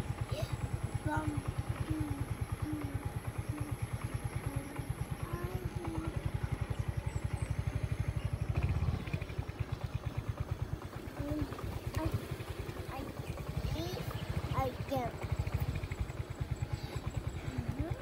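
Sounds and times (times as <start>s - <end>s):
small motorcycle engine running: 0.0s - 18.0s.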